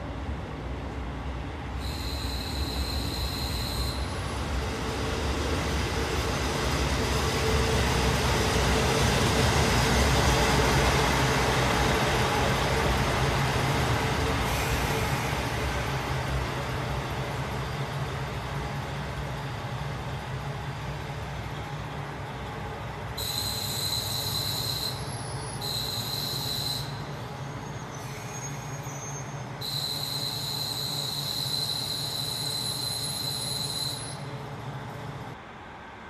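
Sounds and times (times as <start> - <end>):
high-pitched steady whine: 1.8 - 4.2.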